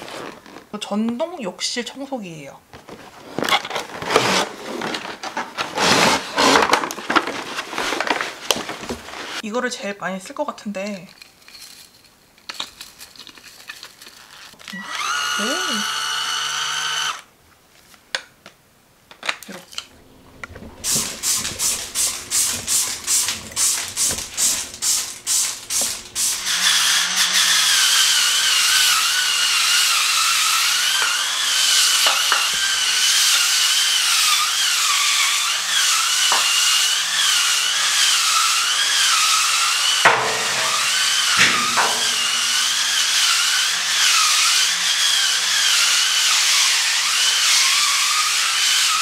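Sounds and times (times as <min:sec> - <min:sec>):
electric scrubber on wet tiles: 0:14.7 - 0:17.2, 0:20.3 - 0:49.0
spray bottle squirting: 0:20.8 - 0:26.6
brief knocks: 0:40.1 - 0:43.2.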